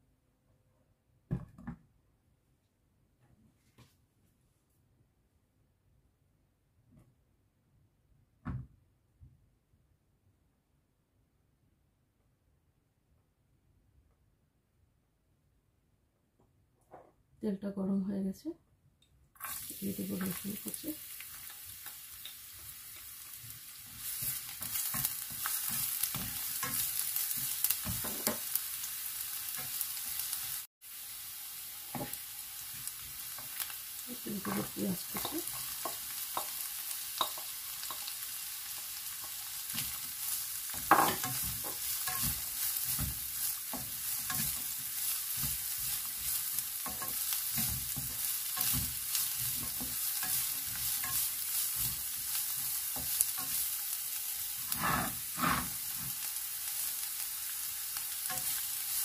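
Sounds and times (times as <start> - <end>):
food sizzling in hot oil: 19.4 - 59.0
knocks and scrapes against pan: 27.4 - 28.4, 40.8 - 44.7.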